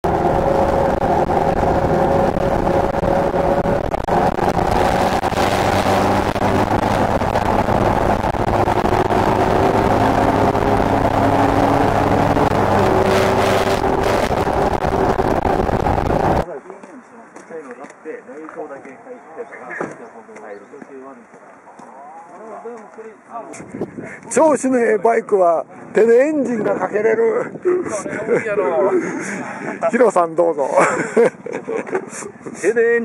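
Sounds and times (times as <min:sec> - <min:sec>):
motorcycle engine droning: 0:00.0 - 0:16.4.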